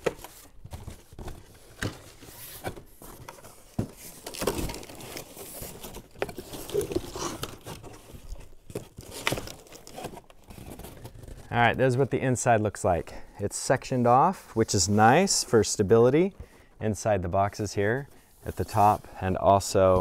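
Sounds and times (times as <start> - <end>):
cardboard flaps rustling and scraping: 0.0 - 11.5.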